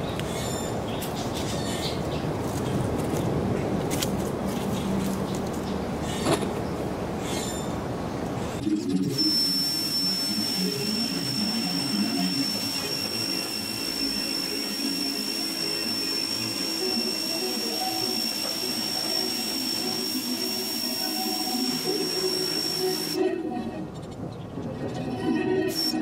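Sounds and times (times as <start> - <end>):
pressure washer whine: 9.0 - 23.4
water jet hissing on concrete: 9.2 - 23.2.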